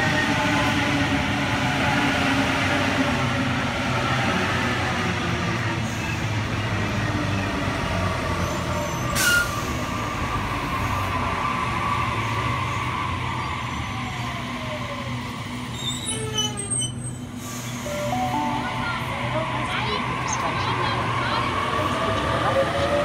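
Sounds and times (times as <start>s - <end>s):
electric train rumbling hum: 9.7s - 23.0s.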